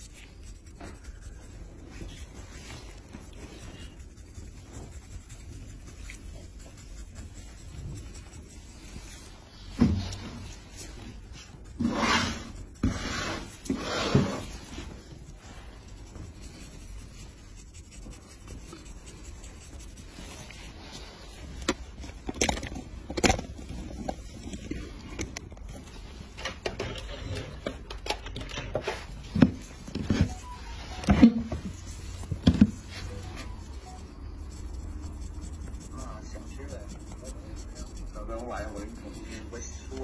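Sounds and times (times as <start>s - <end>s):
blade scraping callus: 10.0s - 20.5s, 33.1s - 40.0s.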